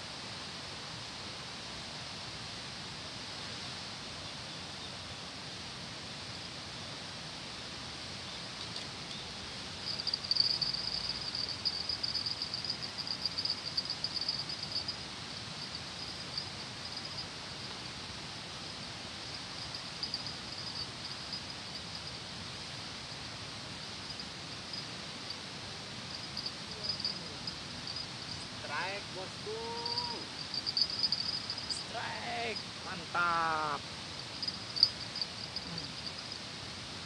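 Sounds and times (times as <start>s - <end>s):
steady outdoor noise: 0.0s - 37.0s
insect pulsing trill: 8.7s - 23.2s, 23.8s - 36.6s.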